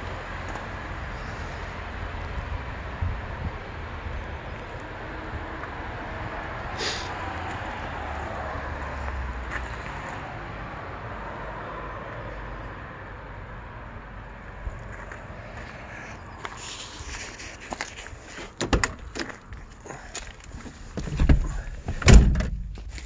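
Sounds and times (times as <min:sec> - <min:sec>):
car door clicks and knocks: 0:18.6 - 0:19.1, 0:21.0 - 0:22.8.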